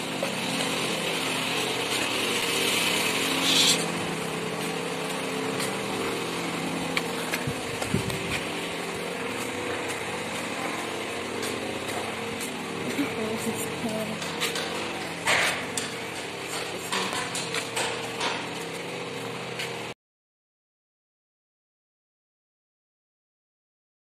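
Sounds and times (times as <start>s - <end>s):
small motor humming: 0.0s - 19.9s
hiss: 1.6s - 4.0s.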